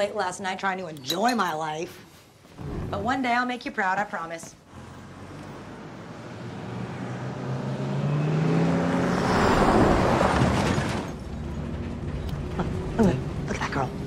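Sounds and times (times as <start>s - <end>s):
bus passing by: 4.7s - 14.0s.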